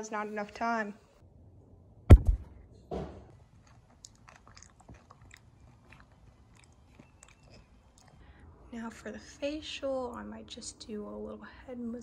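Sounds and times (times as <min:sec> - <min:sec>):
popcorn crunching: 0:03.5 - 0:08.1.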